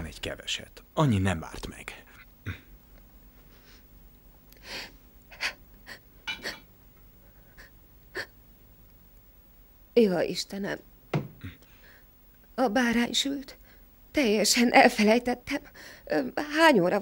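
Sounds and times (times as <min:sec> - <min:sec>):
soft breath: 0:11.5 - 0:12.1.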